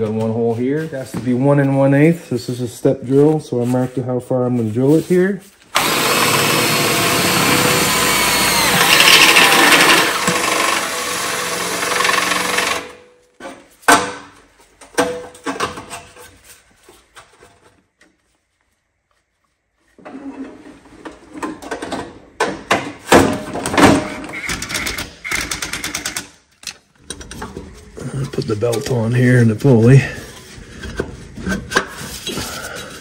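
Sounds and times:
cordless drill cutting metal: 5.8 - 13.0.

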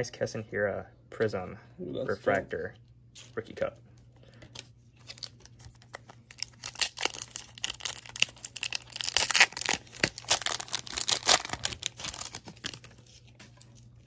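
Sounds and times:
foil wrapper tearing and crinkling: 5.0 - 14.0.

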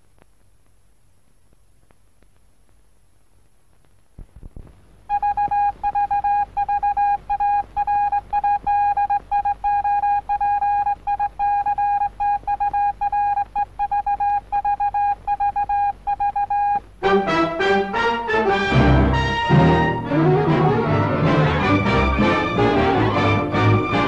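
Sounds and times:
morse code beeps: 5.1 - 16.8.

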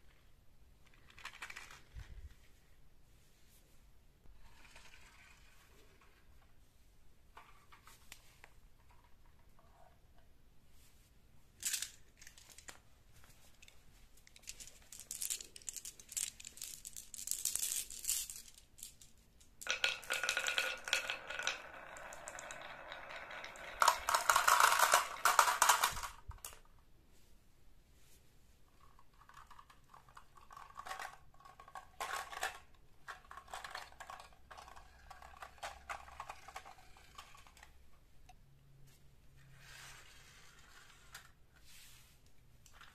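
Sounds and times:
marbles rattling on wooden track: 0.8 - 2.2, 14.3 - 26.7, 28.9 - 37.8
marbles rolling down plastic tube: 4.4 - 6.5, 14.5 - 26.7, 28.8 - 37.8.

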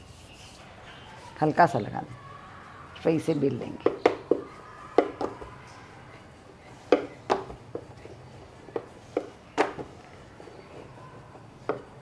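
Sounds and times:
rolling pin rolling dough: 0.0 - 12.0
rolling pin knocking on board: 3.8 - 5.5, 6.9 - 7.9, 8.7 - 9.9, 11.6 - 11.9.

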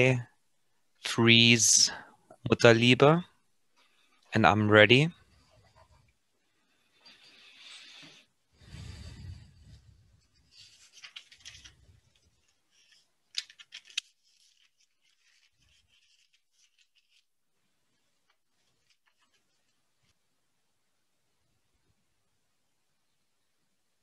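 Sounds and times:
handling rustle on microphone: 14.1 - 17.3.

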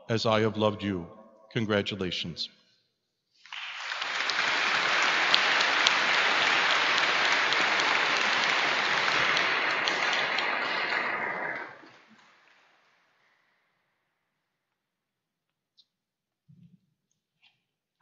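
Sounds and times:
audience applauding with echo: 3.4 - 12.8.

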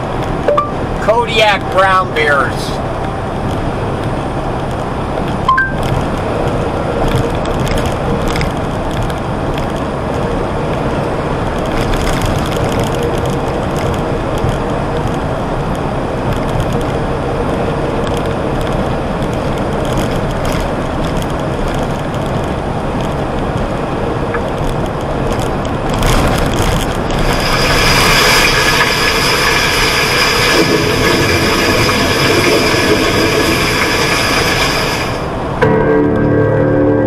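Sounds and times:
truck engine and road noise: 0.0 - 37.0
hissing sound with high whine: 27.1 - 35.4.

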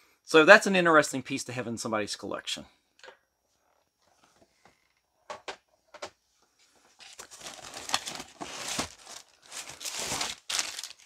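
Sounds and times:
packaging crinkling and rustling: 7.0 - 11.0.

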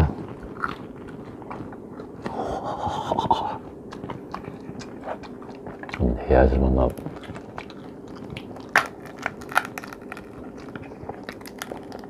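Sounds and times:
crab shell clicking and scraping: 6.9 - 12.0.

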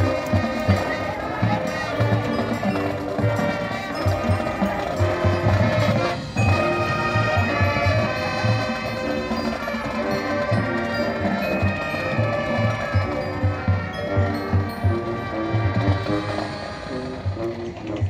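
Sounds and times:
brass chords: 0.0 - 18.0.

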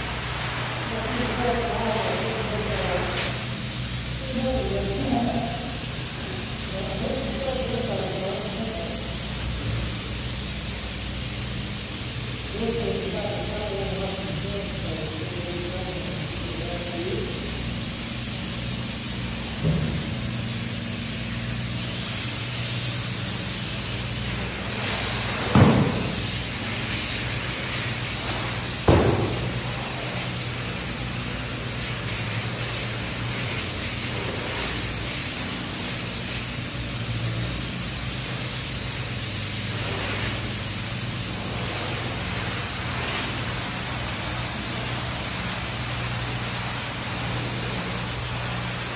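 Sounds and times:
spray foam gun hissing: 0.0 - 48.9
loud thumps: 28.8 - 29.6.

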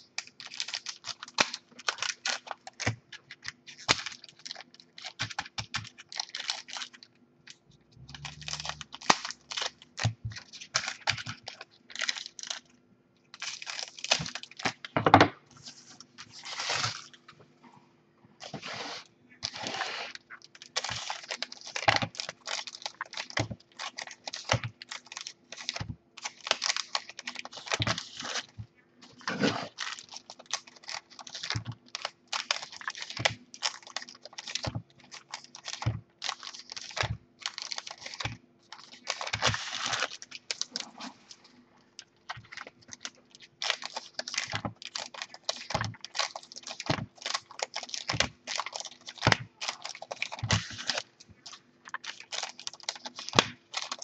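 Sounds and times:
wrappers crinkling: 0.0 - 12.7, 13.3 - 14.9, 15.5 - 17.4, 18.4 - 54.0
scissors snipping wrappers: 0.2 - 7.0, 8.0 - 12.7, 20.4 - 28.5, 29.1 - 41.0, 42.2 - 54.0.

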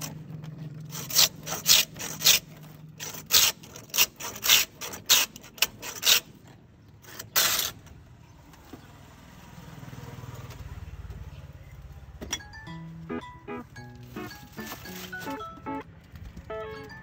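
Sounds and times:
music: 12.4 - 15.8, 16.5 - 17.0.

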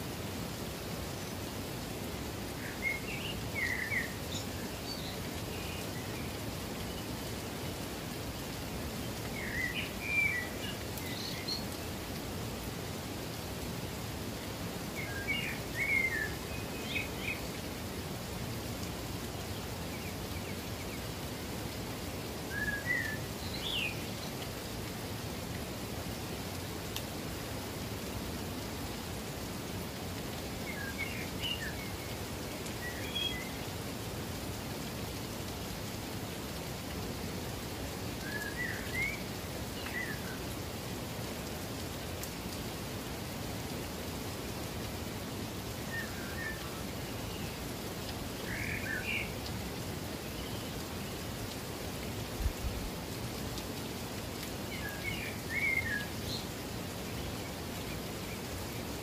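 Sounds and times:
rushing water: 0.0 - 59.0
songbird chirping: 30.4 - 33.7, 53.8 - 59.0.

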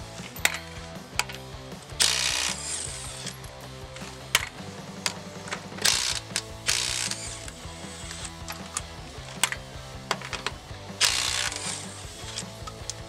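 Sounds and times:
impact wrench hammering: 0.0 - 13.0
sharp clicks: 0.1 - 13.0.

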